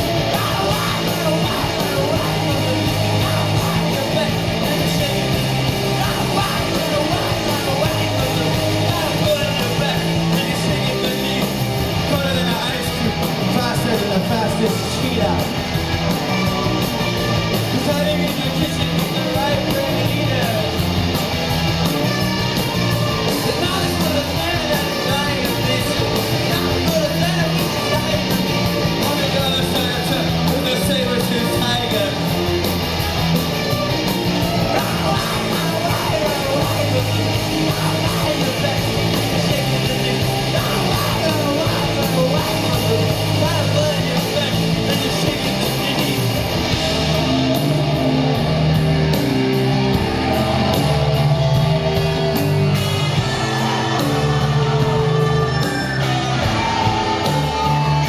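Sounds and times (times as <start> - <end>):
singer's voice on microphone: 0.0 - 21.0, 22.1 - 32.6, 34.4 - 48.4
rock band playing live: 0.0 - 58.0.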